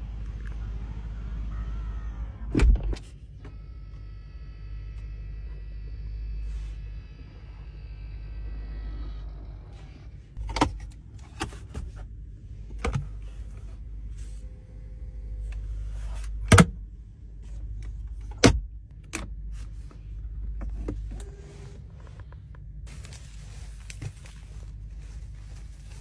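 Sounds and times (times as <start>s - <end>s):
low cabin hum: 0.0s - 26.0s
car console clicks and knocks: 16.4s - 16.8s, 18.2s - 19.3s.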